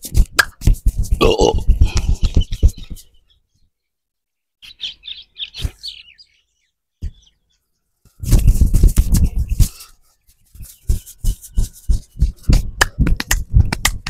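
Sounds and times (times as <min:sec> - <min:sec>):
hands rubbing hair and scalp: 0:00.0 - 0:01.2, 0:08.1 - 0:14.0
small birds chirping: 0:01.3 - 0:12.8.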